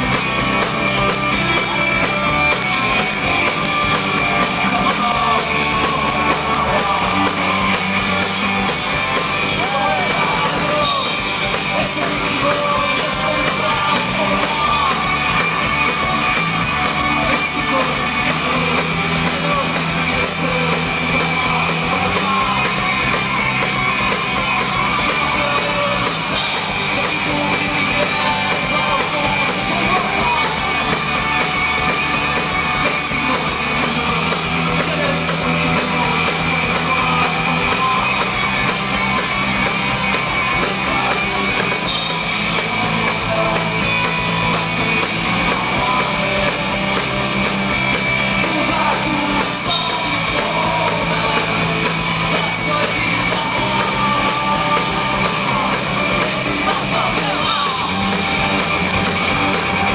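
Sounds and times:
drums: 0:00.0 - 0:59.9
electric guitar: 0:00.0 - 0:59.9
man singing into microphone: 0:04.6 - 0:07.4, 0:09.5 - 0:15.2, 0:17.2 - 0:23.0, 0:24.6 - 0:30.9, 0:32.8 - 0:38.2, 0:45.4 - 0:47.1, 0:48.4 - 0:58.2.

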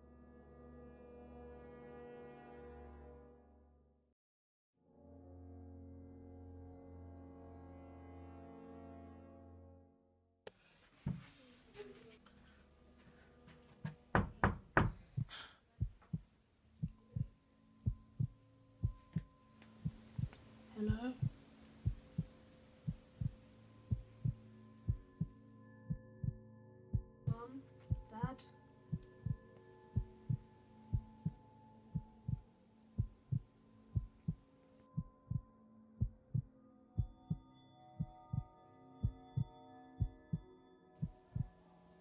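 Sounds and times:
knocks on a door: 0:13.8 - 0:16.2
heartbeat double thump: 0:14.2 - 0:16.2, 0:16.8 - 0:17.3, 0:17.9 - 0:20.3, 0:20.9 - 0:22.3, 0:22.9 - 0:26.4, 0:27.0 - 0:28.3, 0:29.0 - 0:31.4, 0:32.0 - 0:32.4, 0:33.0 - 0:34.4, 0:36.0 - 0:37.4, 0:41.0 - 0:41.5.

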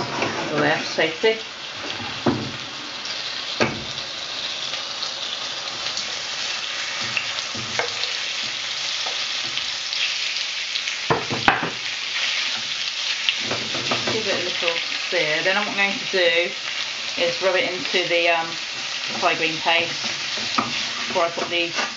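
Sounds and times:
food sizzling in frying pan: 0:00.0 - 0:21.9
spatula knocking on board and pan: 0:11.1 - 0:11.8.

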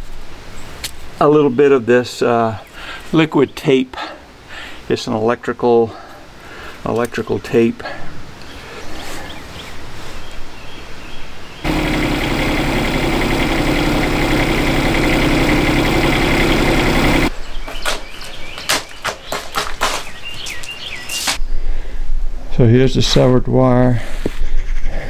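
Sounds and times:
excavator diesel engine: 0:11.7 - 0:17.3.

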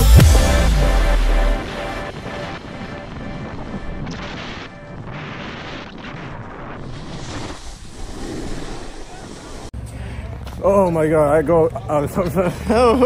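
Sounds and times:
snowboard scraping over snow: 0:02.1 - 0:09.8.

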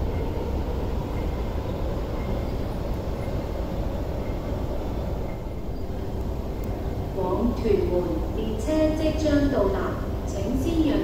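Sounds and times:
electric train low rumble: 0:00.0 - 0:11.0.

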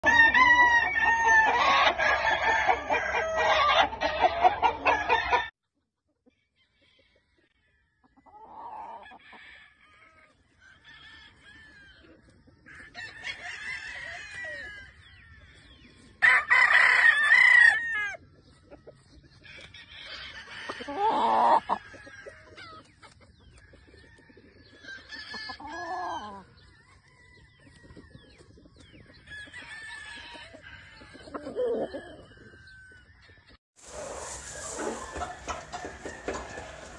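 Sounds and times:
roosters crowing: 0:00.0 - 0:05.5, 0:06.6 - 0:18.3, 0:19.3 - 0:28.4, 0:29.1 - 0:36.9
chicken clucking: 0:00.7 - 0:09.5, 0:18.2 - 0:36.9.

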